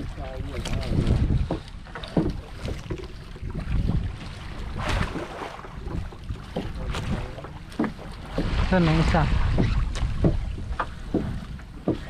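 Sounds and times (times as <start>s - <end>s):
splashes: 0.0s - 12.0s
wind buffeting microphone: 0.0s - 12.0s
sharp knocks: 9.5s - 12.0s.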